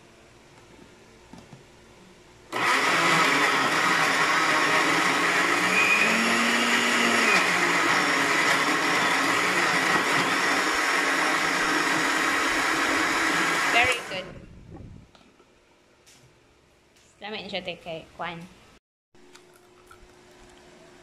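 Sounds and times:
electric blender running: 0:02.5 - 0:14.3.

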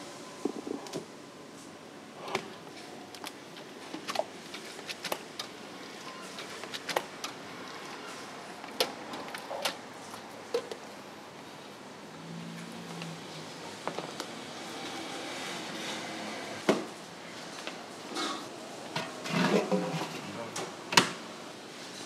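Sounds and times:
steady background noise: 0:00.0 - 0:22.0.

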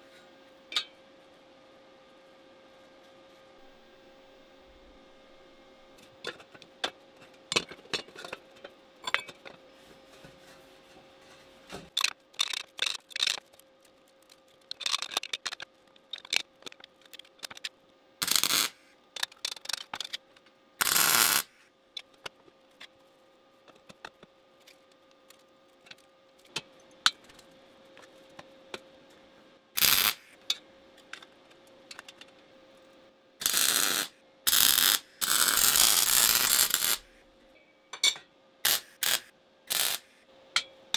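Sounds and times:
faint steady hum: 0:00.0 - 0:40.9
tools clicking and tapping: 0:14.6 - 0:17.7
short hissing bursts: 0:38.7 - 0:40.2.

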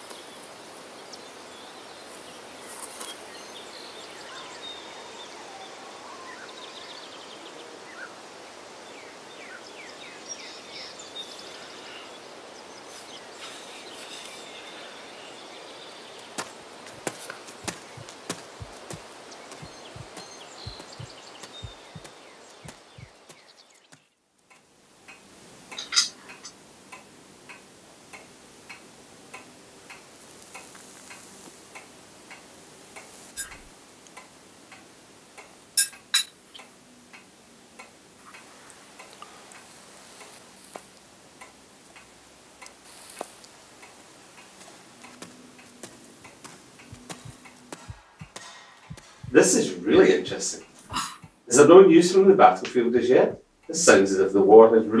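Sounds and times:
clock ticking: 0:43.8 - 0:49.4.

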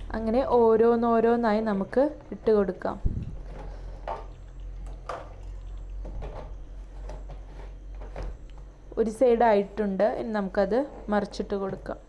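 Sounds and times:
low steady hum: 0:00.0 - 0:12.0
deep-frying sizzle in oil: 0:03.7 - 0:06.9.

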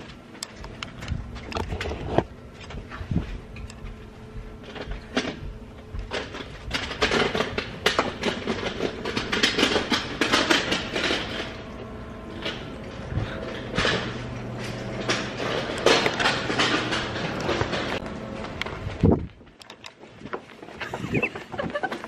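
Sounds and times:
objects clattering and knocking: 0:04.6 - 0:22.0.

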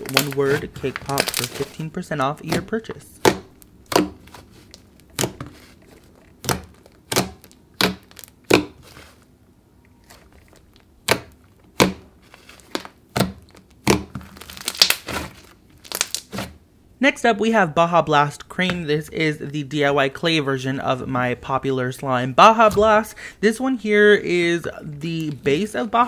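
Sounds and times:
slime crackling: 0:00.0 - 0:09.3, 0:09.9 - 0:16.6
slime popping and clicking: 0:06.4 - 0:08.8.

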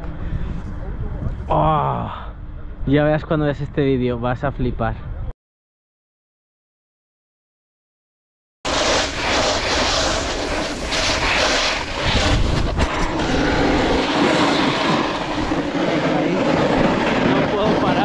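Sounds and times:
snowboard scraping icy snow: 0:08.7 - 0:18.0
wind on microphone: 0:08.7 - 0:18.0.

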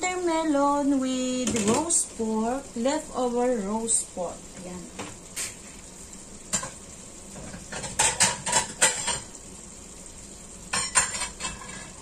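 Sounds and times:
dishes and utensils clattering: 0:07.4 - 0:09.3, 0:10.7 - 0:12.0.

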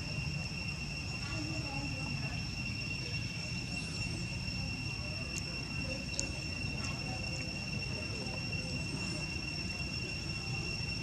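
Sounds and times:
high-pitched insect drone: 0:00.0 - 0:11.0
faint clicks: 0:05.3 - 0:07.5.

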